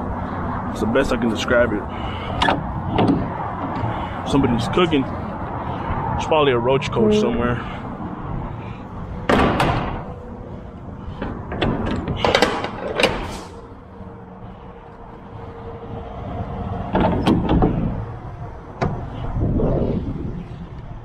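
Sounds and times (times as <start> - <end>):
metal door clanks and rattles: 11.2 - 13.4.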